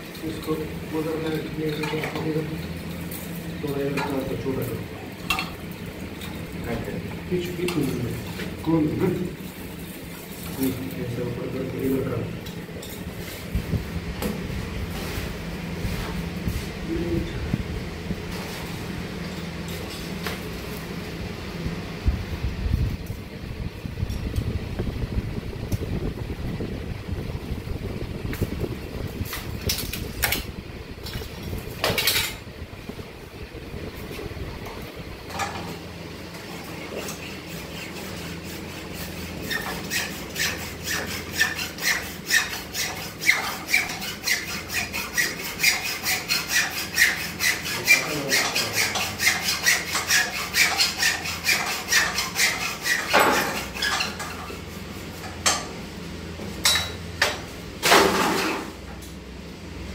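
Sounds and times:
hacksaw cutting cable: 36.8 - 54.4.

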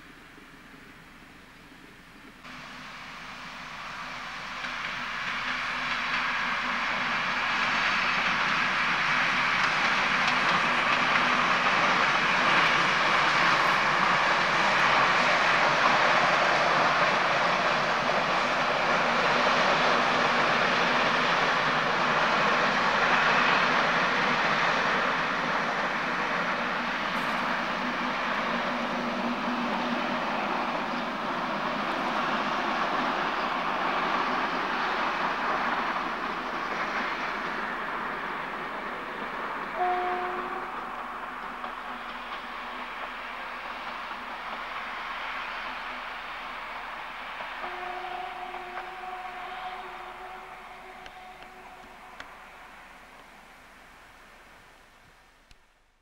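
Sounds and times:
train wheels rumbling on rail: 0.0 - 55.7
low train hum: 0.0 - 56.0.

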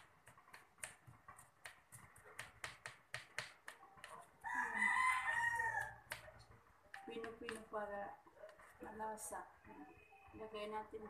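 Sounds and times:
knife chopping on cutting board: 0.0 - 4.3, 5.8 - 7.7
rooster crowing: 4.4 - 6.0.

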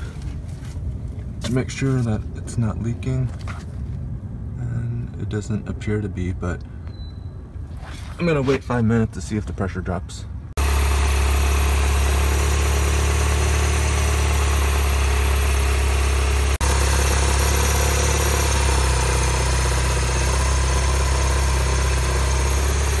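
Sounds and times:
car engine idling: 10.6 - 23.0.

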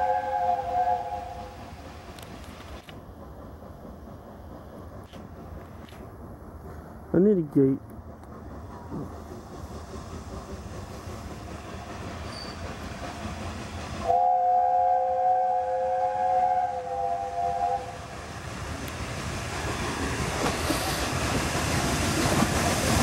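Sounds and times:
steam locomotive chime whistle: 0.0 - 1.6, 12.3 - 12.7, 14.0 - 18.1
steam hiss: 0.0 - 7.1, 8.3 - 23.0
train rumble: 0.0 - 23.0.

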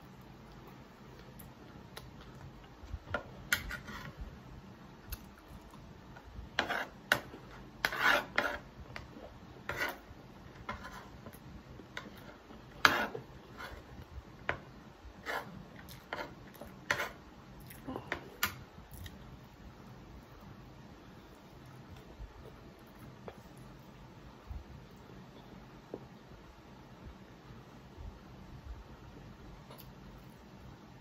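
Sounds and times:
spoon and fork scraping plate: 3.5 - 4.2, 6.6 - 9.1, 9.7 - 10.0, 10.6 - 11.2, 12.0 - 13.9, 15.2 - 17.2.

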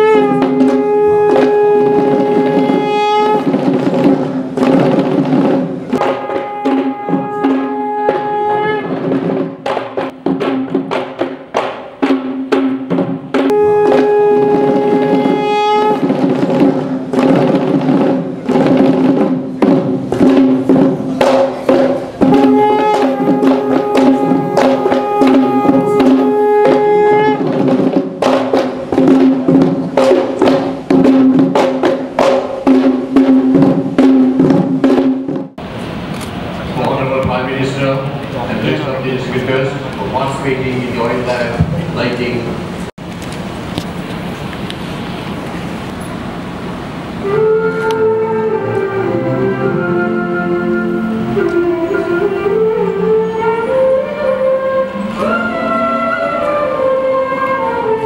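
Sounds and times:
wind instrument long notes: 0.0 - 9.6, 13.4 - 19.2, 21.6 - 28.1, 47.1 - 58.0
fast drumming: 0.0 - 35.6.

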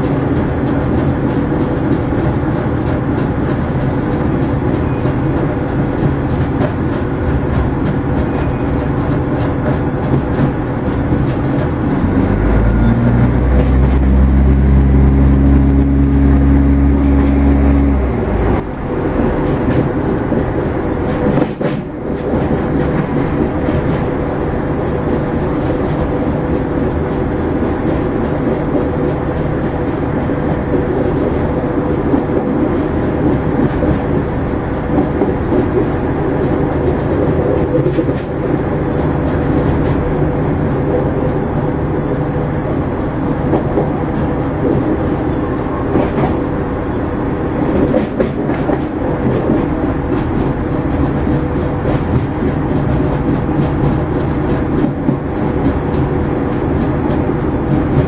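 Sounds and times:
train engine and wheels droning: 0.0 - 58.0
clicks over rail joints: 47.6 - 58.0.

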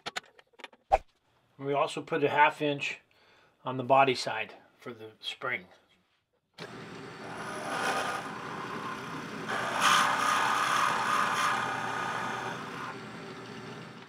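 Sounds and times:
drill bit boring wood: 6.6 - 14.0
drill press motor hum: 6.6 - 14.0.

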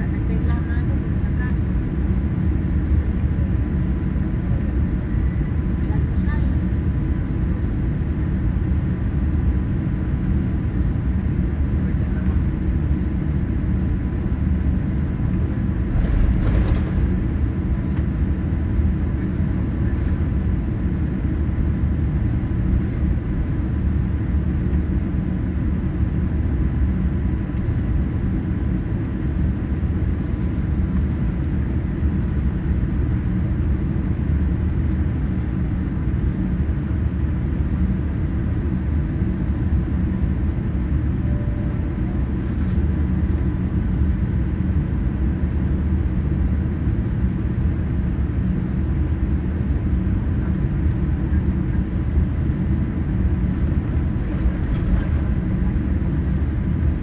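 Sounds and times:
faint steady whine: 0.0 - 44.6
aircraft cabin low rumble: 0.0 - 57.0.

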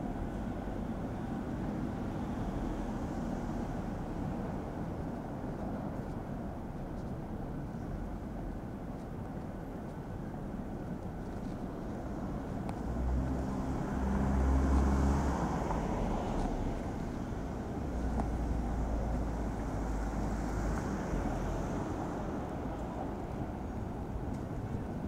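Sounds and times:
low traffic hum: 0.0 - 25.0
car passing by: 12.8 - 23.3.

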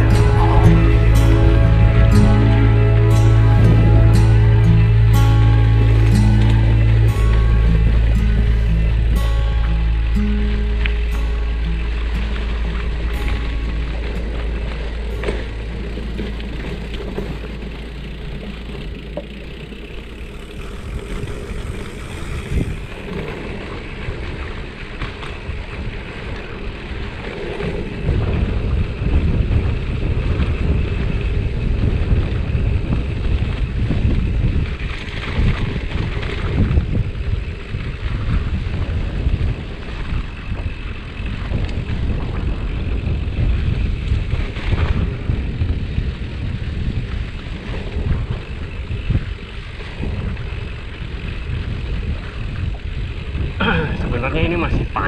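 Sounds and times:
wind buffeting microphone: 0.0 - 55.0
bicycle tyres rumbling on concrete: 11.9 - 55.0.

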